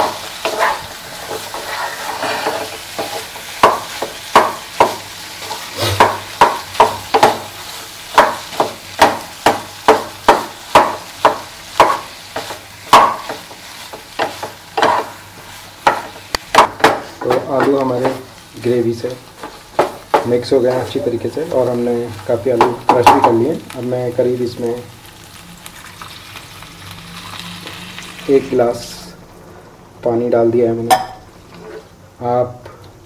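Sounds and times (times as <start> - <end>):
spatula stirring potatoes: 0.0 - 24.7
spatula knocking against pan: 3.0 - 5.0, 6.0 - 7.5, 8.1 - 15.1, 15.8 - 18.2.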